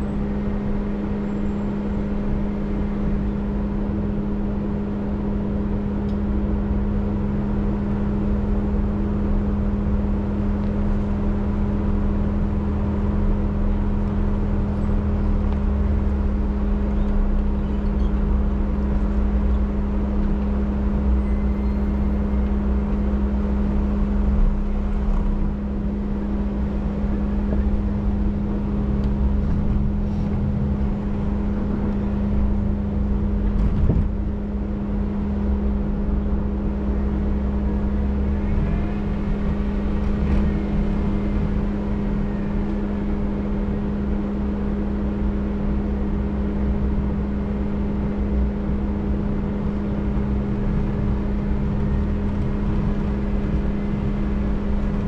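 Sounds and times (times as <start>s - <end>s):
vehicle engine rumbling: 0.0s - 55.0s.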